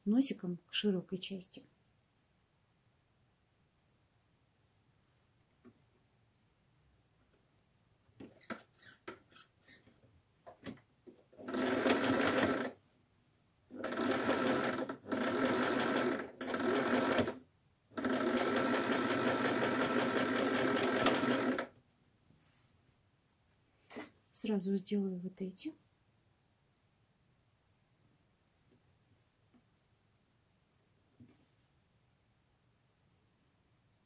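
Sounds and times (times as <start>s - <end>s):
sewing machine stitching: 11.4s - 12.8s, 13.7s - 17.4s, 18.0s - 21.7s.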